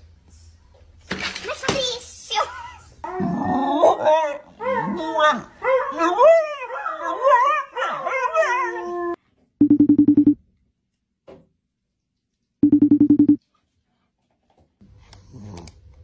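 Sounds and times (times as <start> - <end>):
dog howling: 3.1 - 9.2.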